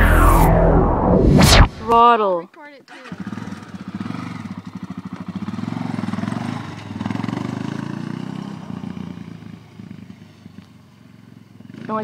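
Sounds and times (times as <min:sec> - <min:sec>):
quad bike engine revving: 0:02.9 - 0:09.4.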